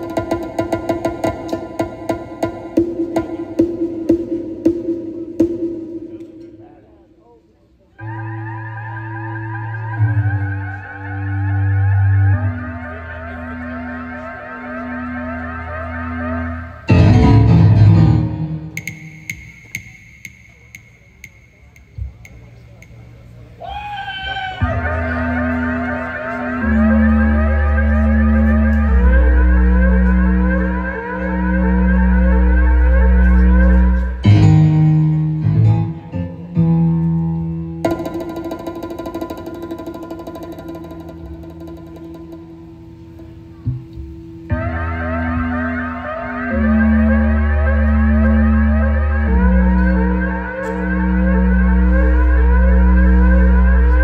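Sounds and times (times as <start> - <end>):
sustained synthesizer notes: 8.0 - 23.6, 24.6 - 54.0
band playing sharp accented chords: 12.5 - 23.6, 37.8 - 54.0.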